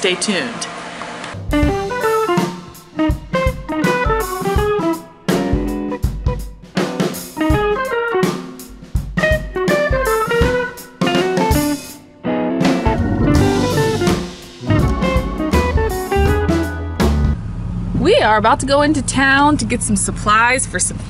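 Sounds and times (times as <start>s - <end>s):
drum kit beat: 1.4s - 12.0s, 12.6s - 17.4s
plucked guitar: 12.2s - 17.0s.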